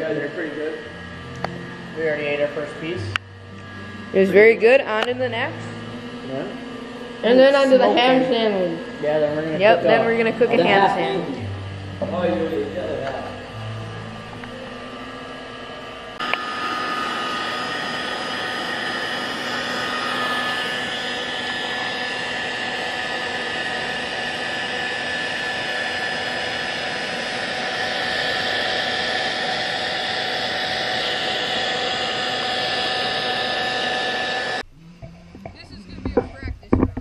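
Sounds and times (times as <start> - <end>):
heat gun blowing with whine: 0.0 - 37.0.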